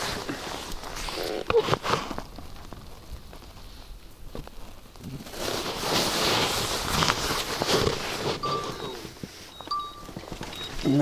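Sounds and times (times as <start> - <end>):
clothing rustling: 0.0 - 3.8, 5.0 - 11.0.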